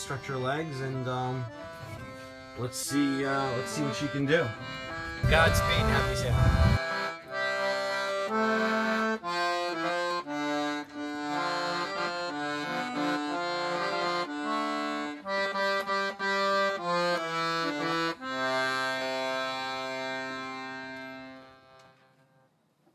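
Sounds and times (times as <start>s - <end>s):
piano accordion playing chords: 0.0s - 22.4s.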